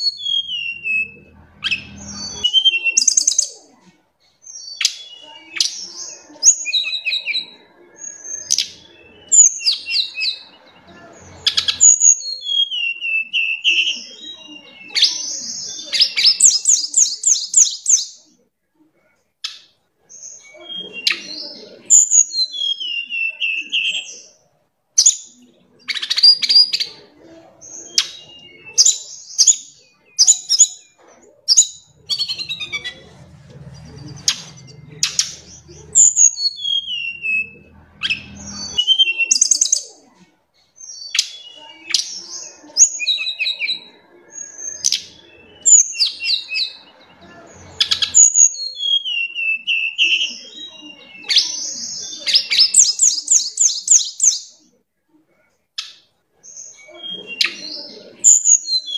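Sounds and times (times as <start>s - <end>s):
bird singing whistled trills: 20.3s - 24.3s, 56.6s - 58.9s.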